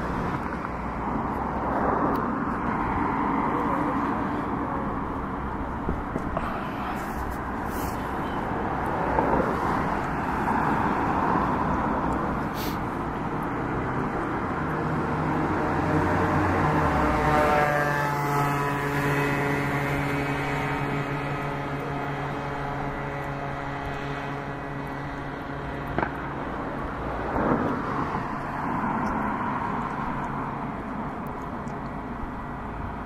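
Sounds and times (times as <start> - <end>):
engine hum: 0.0 - 33.0.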